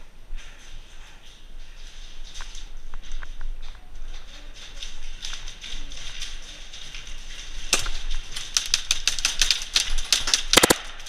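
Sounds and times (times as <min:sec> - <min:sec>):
airsoft gunfire cracks: 0:10.5 - 0:11.0.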